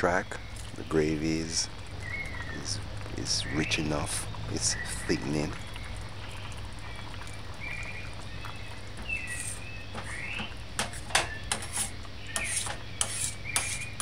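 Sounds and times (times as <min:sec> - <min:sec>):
spoon scraping a metal pot: 0:10.8 - 0:14.0.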